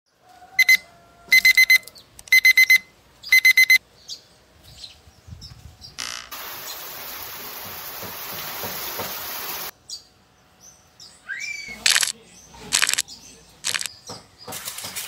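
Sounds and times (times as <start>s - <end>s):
phone alarm beeping: 0.6s - 3.8s
running shower water hiss: 6.3s - 9.7s.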